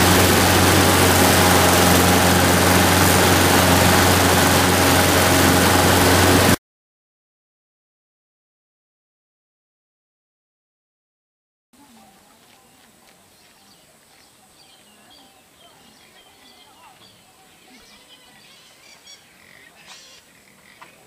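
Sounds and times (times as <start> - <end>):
faint village ambience: 11.8 - 21.0
birds chirping and calling: 13.4 - 21.0.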